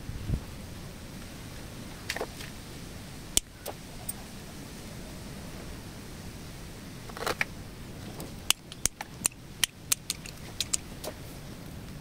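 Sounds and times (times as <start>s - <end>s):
pruning shears snipping: 8.5s - 11.2s.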